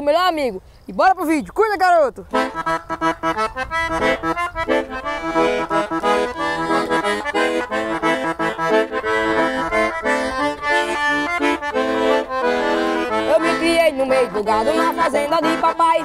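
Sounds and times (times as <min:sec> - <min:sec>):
piano accordion melody: 0:02.3 - 0:16.0.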